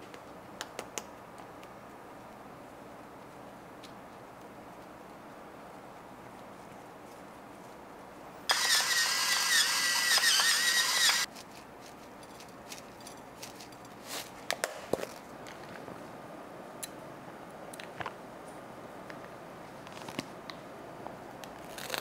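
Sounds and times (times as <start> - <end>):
electric spice grinder running: 8.5 - 11.3.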